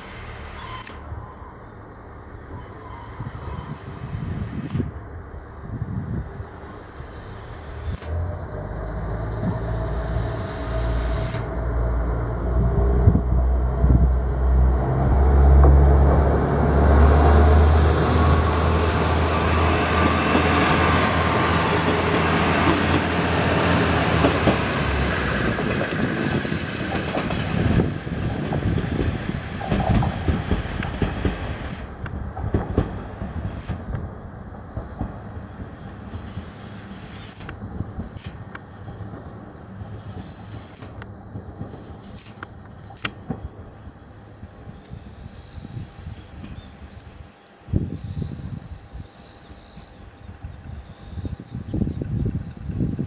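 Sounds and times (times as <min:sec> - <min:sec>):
high wheel squeal: 0:00.0 - 0:01.8, 0:02.4 - 0:04.6, 0:17.0 - 0:30.6
diesel engine drone: 0:04.4 - 0:25.8
train wheel clatter: 0:17.8 - 0:43.5.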